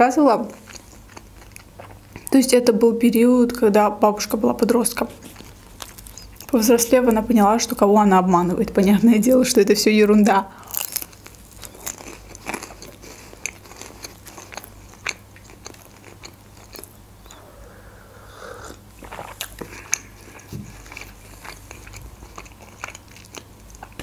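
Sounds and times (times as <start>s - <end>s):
crunchy chewing: 0.5s - 2.3s, 5.2s - 6.6s, 10.6s - 24.0s
wet mouth sounds: 14.5s - 21.2s
person drinking from mug: 17.2s - 19.4s.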